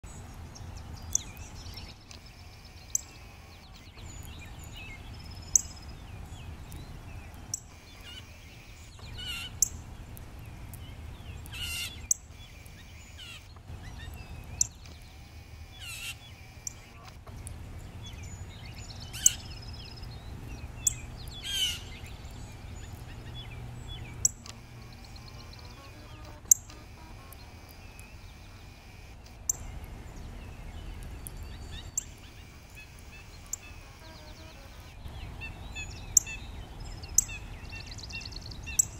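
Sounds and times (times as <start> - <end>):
songbird chip calls: 0.1 - 38.9
low steady rumble: 29.4 - 32.5.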